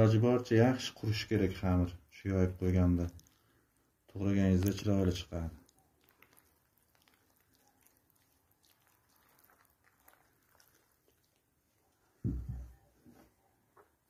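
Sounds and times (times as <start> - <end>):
pastry brush dabbing and rustling: 0.8 - 14.0.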